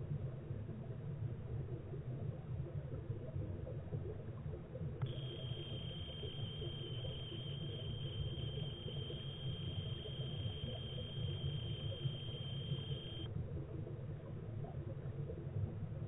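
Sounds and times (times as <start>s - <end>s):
thin high tone: 5.0s - 13.3s.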